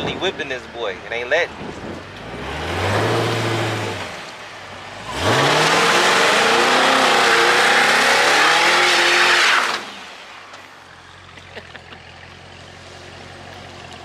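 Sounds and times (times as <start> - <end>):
car engine revving: 1.9 - 10.4.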